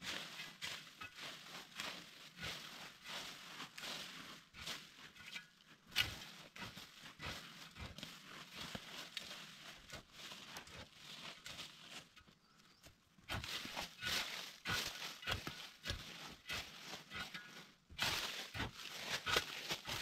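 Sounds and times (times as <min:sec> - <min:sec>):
branches and dry leaves rustling: 0:00.0 - 0:20.0.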